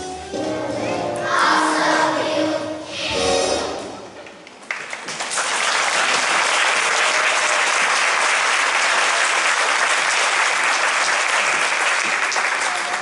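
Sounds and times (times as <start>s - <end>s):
audience applauding: 4.6s - 13.0s.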